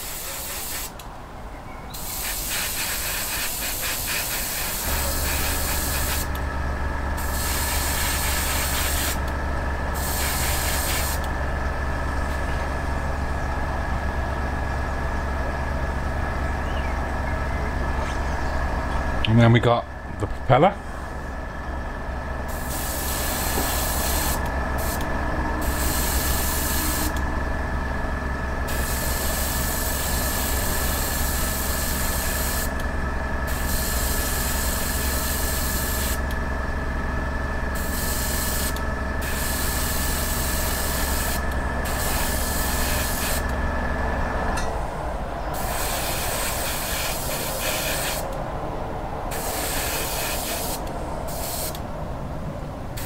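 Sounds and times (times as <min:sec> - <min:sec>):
airbrush spraying paint: 0:00.0 - 0:01.0, 0:02.0 - 0:06.4, 0:07.2 - 0:09.2, 0:09.9 - 0:11.2, 0:22.5 - 0:25.0, 0:25.6 - 0:27.2, 0:28.7 - 0:32.7, 0:33.5 - 0:36.2, 0:37.8 - 0:43.5, 0:45.6 - 0:48.3, 0:49.3 - 0:51.8
steady machine hum: 0:00.0 - 0:53.0.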